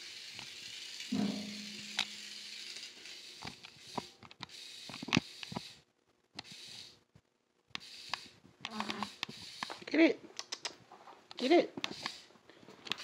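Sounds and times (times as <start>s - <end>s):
toy car clicking on concrete: 0.0s - 1.2s, 1.8s - 5.8s, 7.8s - 10.7s, 11.4s - 13.0s
steady hiss: 0.0s - 7.0s, 7.8s - 10.0s, 11.4s - 13.0s.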